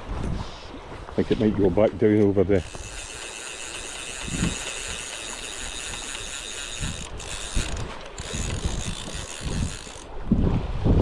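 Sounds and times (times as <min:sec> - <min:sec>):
fishing reel ratchet buzzing: 0:02.6 - 0:10.2.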